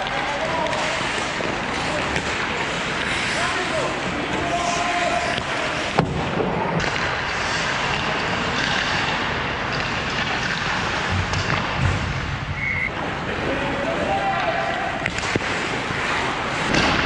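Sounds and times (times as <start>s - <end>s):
hockey sticks knocking on puck: 0.0s - 11.9s, 15.0s - 17.0s
skate blades scraping ice: 0.0s - 12.0s, 15.0s - 17.0s.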